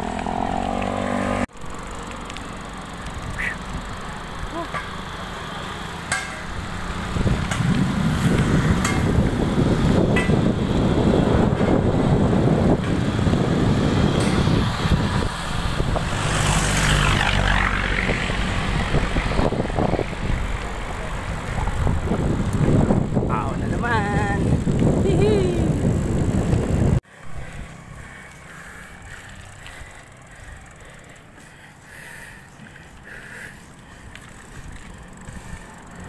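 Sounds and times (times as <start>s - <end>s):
motor vehicle passing: 0.0s - 36.0s
road noise: 0.0s - 36.0s
wind rumbling on microphone: 7.0s - 28.1s.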